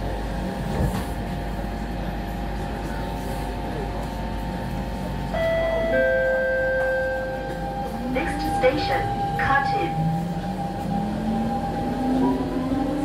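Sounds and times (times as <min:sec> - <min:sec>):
train car hum: 0:00.0 - 0:13.0.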